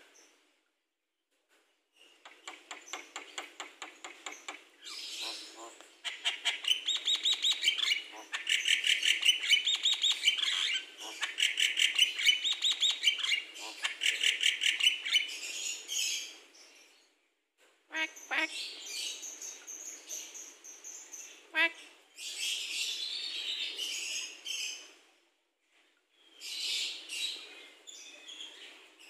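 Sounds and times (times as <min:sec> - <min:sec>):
myna bird singing: 0:02.2 - 0:16.4.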